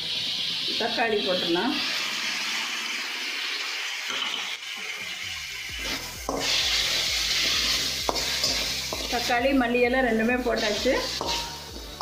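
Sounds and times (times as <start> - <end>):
vegetables sizzling in hot oil: 0.0 - 12.0
metal spoon stirring pan: 5.8 - 9.4, 10.1 - 12.0.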